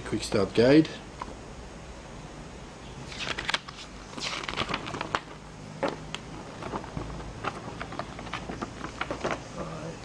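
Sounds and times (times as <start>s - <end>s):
paper crackling and rustling: 3.0s - 10.0s.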